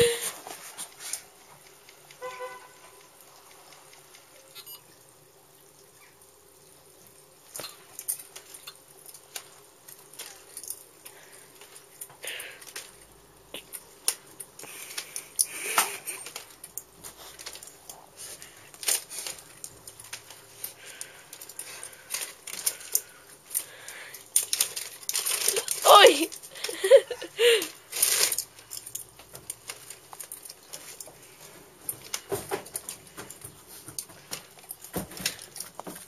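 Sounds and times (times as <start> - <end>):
plastic clicks and clatter of toy: 7.6 - 18.0, 18.6 - 31.2.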